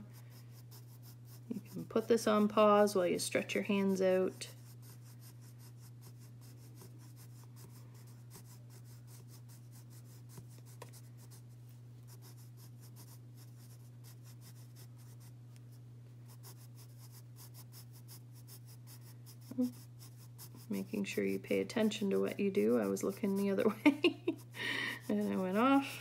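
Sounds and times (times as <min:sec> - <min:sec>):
pencil scratching on paper: 0:00.0 - 0:15.4, 0:16.3 - 0:26.0
steady low hum: 0:00.0 - 0:26.0.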